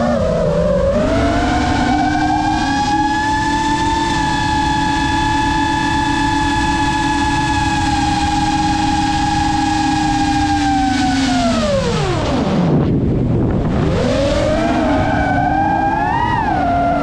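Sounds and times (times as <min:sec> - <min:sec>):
drone motors whining: 0:00.0 - 0:17.0
rush of wind: 0:00.0 - 0:17.0.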